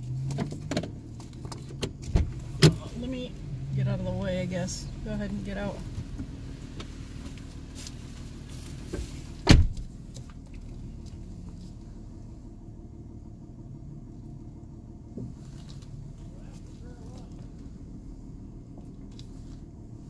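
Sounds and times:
engine idling: 0:00.0 - 0:20.0
car door slamming: 0:01.9 - 0:02.8, 0:08.9 - 0:10.0.

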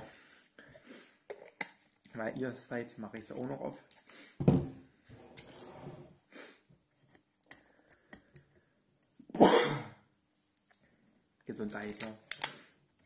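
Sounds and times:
thump: 0:04.4 - 0:04.8
person sneezing: 0:09.4 - 0:10.0.

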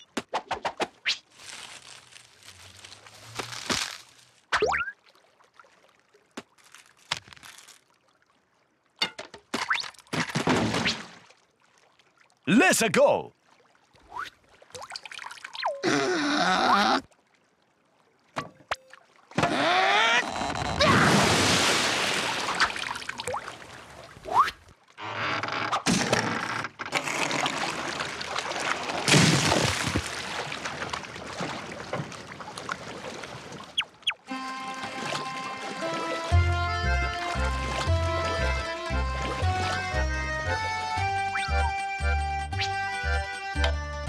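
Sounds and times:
strained vocal groan: 0:15.8 - 0:17.0
water sloshing: 0:26.9 - 0:36.4.

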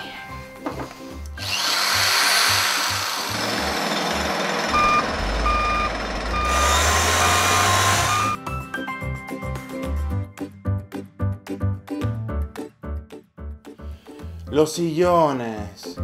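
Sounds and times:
power tool running harshly: 0:01.4 - 0:08.4
low rumble: 0:04.8 - 0:06.8
short beeps: 0:04.8 - 0:08.4.

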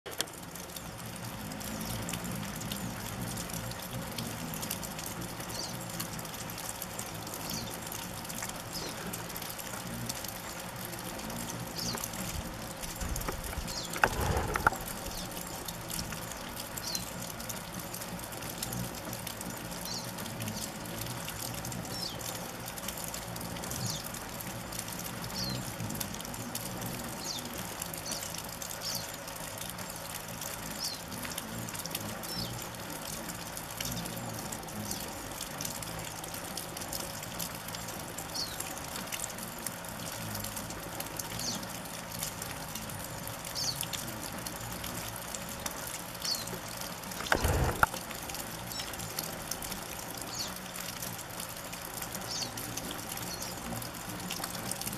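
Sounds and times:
hummingbird wings whirring: 0:00.3 - 0:51.0
hummingbird chip calls: 0:11.1 - 0:17.8.

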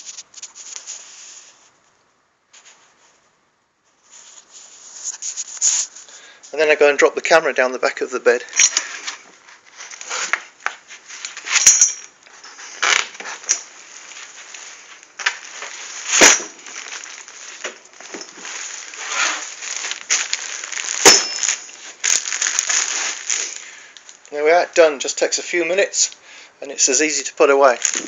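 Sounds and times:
rustling and scraping against fabric: 0:00.0 - 0:01.8, 0:02.5 - 0:06.6, 0:08.7 - 0:24.2
clinks against metal frame: 0:11.5 - 0:12.7, 0:21.0 - 0:21.8.

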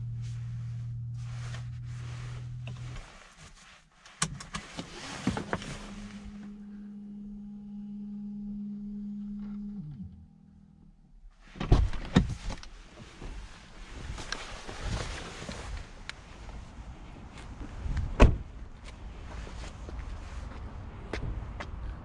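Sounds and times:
rustling: 0:00.0 - 0:06.6, 0:12.2 - 0:16.6
car door latch clunking: 0:18.2 - 0:18.4.

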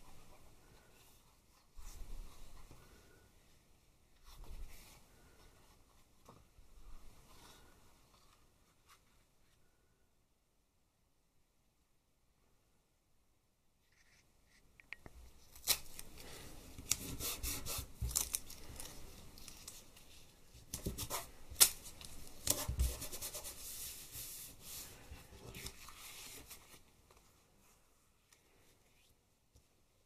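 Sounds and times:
paper rustling: 0:15.4 - 0:27.4
hand rubbing paper: 0:22.0 - 0:26.8.

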